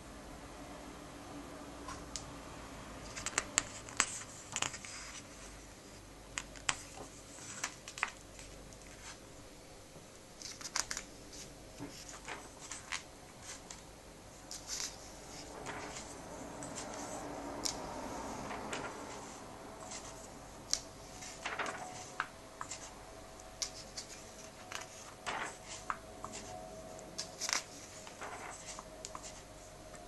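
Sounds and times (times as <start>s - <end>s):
paper pages rustling and snapping: 3.0s - 5.3s, 6.4s - 9.2s, 10.4s - 13.8s, 14.5s - 22.9s, 23.5s - 26.6s, 27.2s - 30.0s.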